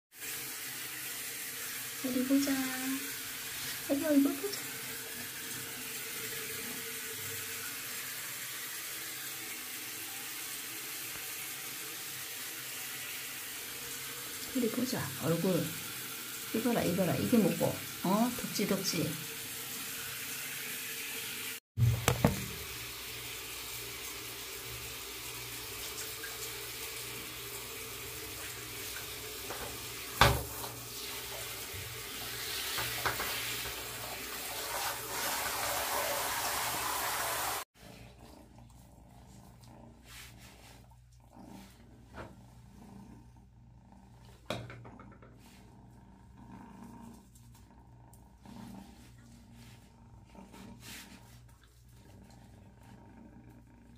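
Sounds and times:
shower head spraying water: 0:00.2 - 0:37.7
small wet sounds: 0:37.8 - 0:42.9, 0:45.4 - 0:53.9.

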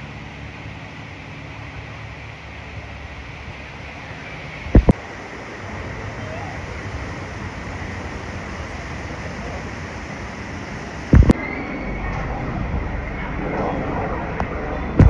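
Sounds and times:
distant jet airliner rumble: 0:00.0 - 0:15.0.

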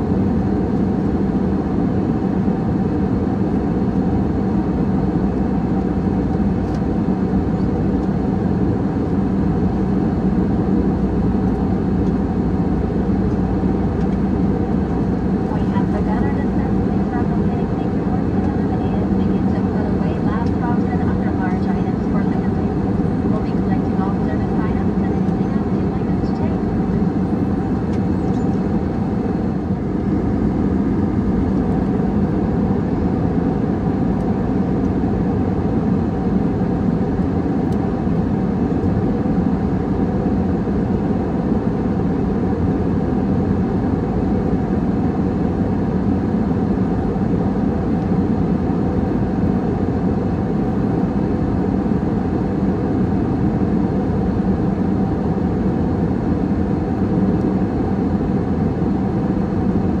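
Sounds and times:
jet airliner cabin rumble: 0:00.0 - 1:00.0
steady low hum: 0:00.0 - 1:00.0.

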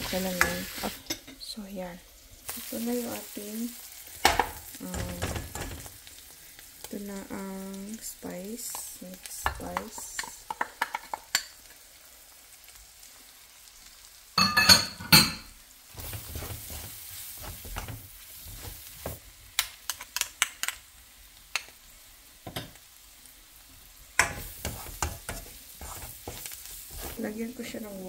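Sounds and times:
chicken sizzling in frying pan: 0:00.0 - 0:01.2, 0:01.8 - 0:28.0
spatula clicking on pan: 0:09.4 - 0:11.5, 0:19.6 - 0:20.8
spatula scraping pan: 0:15.9 - 0:19.2, 0:24.2 - 0:27.8.

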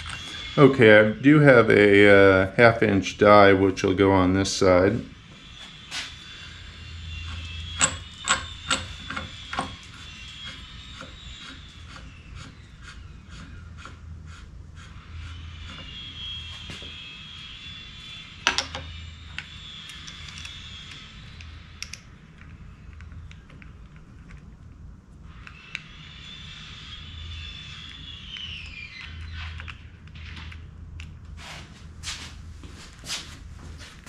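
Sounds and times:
steady low hum: 0:00.0 - 0:34.0
metal tooling clinking: 0:07.7 - 0:09.7.

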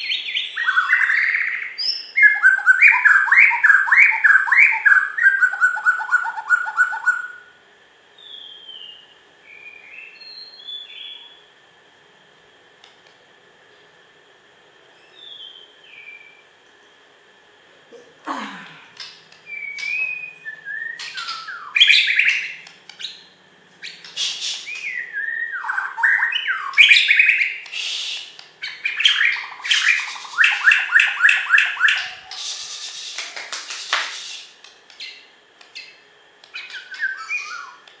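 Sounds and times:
bird singing whistled phrases: 0:00.0 - 0:07.5, 0:08.2 - 0:11.4, 0:15.0 - 0:16.4, 0:19.4 - 0:33.2, 0:36.5 - 0:37.8
harsh noisy bird notes: 0:00.0 - 0:11.6, 0:15.0 - 0:16.5, 0:18.9 - 0:37.9.

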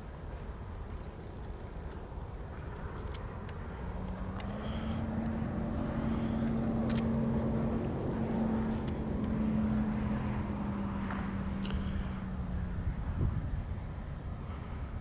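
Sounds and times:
diesel locomotive engines droning: 0:00.0 - 0:15.0
sharp clicks: 0:06.1 - 0:07.2.

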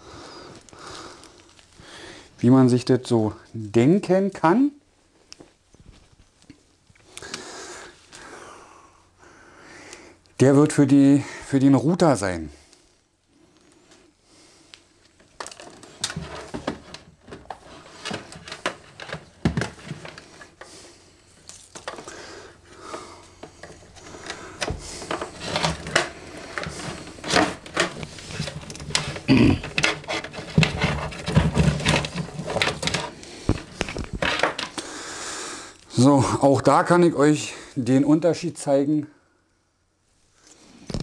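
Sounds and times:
cables clicking and rustling: 0:00.4 - 0:01.9, 0:12.7 - 0:35.0.

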